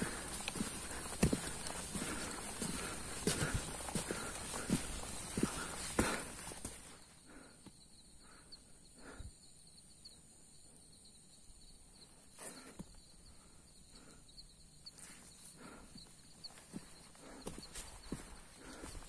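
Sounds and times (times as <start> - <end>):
footsteps on a dirt trail: 0.0 - 7.4, 15.0 - 19.0
insects chirring: 0.0 - 19.0.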